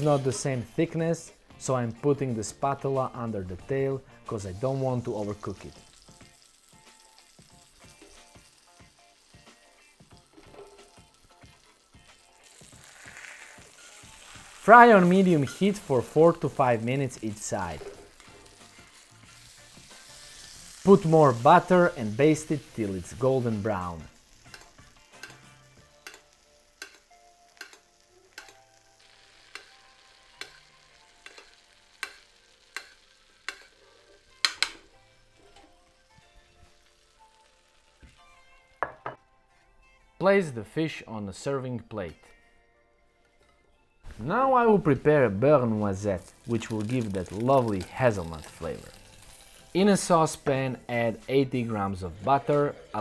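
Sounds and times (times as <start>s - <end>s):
fish sizzling in a pan: 4.0s - 39.2s, 45.6s - 51.5s
metal spoon clinking on pan: 24.5s - 28.6s.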